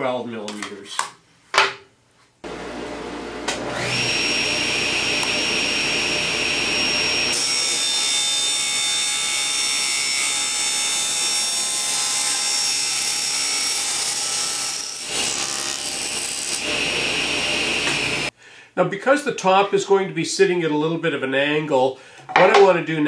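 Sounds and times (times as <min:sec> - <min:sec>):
table saw cutting plastic: 0:02.5 - 0:18.3.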